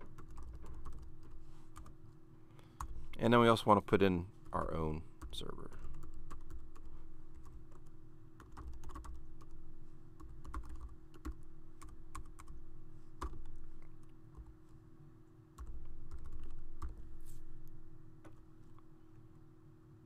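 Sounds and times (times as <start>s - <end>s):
typing on computer keyboard: 0.0s - 1.9s, 5.2s - 9.6s, 10.2s - 12.6s, 13.2s - 14.5s, 15.6s - 17.0s
steady low hum: 0.0s - 20.0s.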